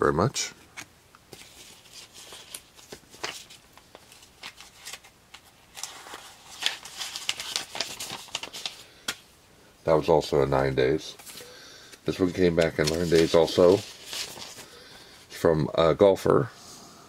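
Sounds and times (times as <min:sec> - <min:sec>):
trading cards rustling: 0:00.6 - 0:09.3, 0:10.4 - 0:15.1.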